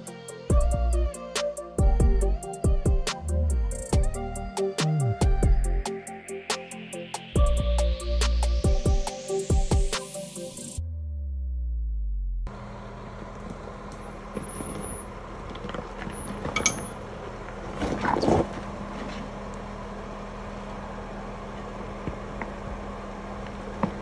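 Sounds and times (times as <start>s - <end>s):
vehicle engine running: 11.4s - 24.0s
light clinks: 16.2s - 17.0s.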